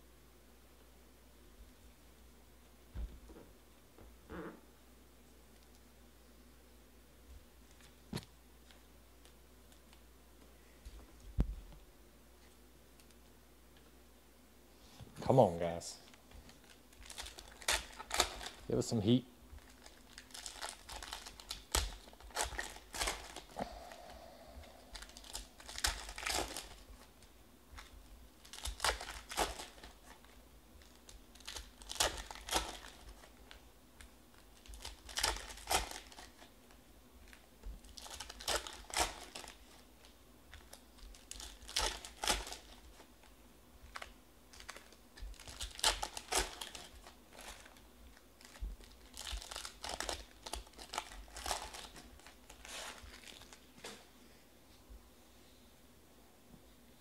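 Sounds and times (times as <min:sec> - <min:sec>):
foil packs tearing and crinkling: 0:16.5 - 0:18.8, 0:19.6 - 0:23.6, 0:24.9 - 0:26.9, 0:27.8 - 0:30.2, 0:30.8 - 0:33.6, 0:34.3 - 0:36.5, 0:37.3 - 0:43.1, 0:43.9 - 0:47.8, 0:48.4 - 0:53.7.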